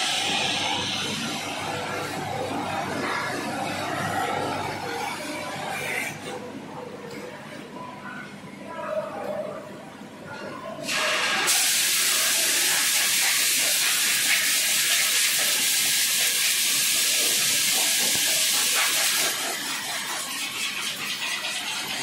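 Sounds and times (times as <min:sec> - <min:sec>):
pressurised gas hissing: 0:10.9 - 0:19.5.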